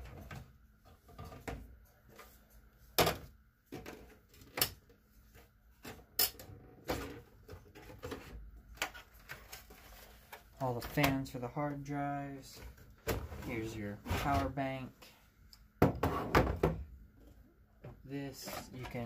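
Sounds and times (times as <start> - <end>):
clicks and knocks of computer parts: 3.0 - 5.0.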